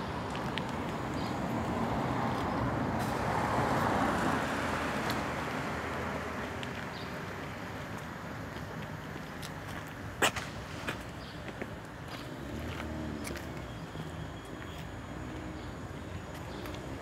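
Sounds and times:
car passing: 0.0 - 8.4, 12.1 - 17.0.

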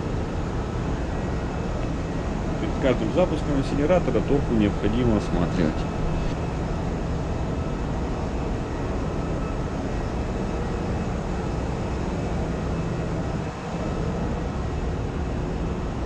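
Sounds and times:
engine room machinery drone: 0.0 - 16.0
low hum: 0.0 - 16.0.

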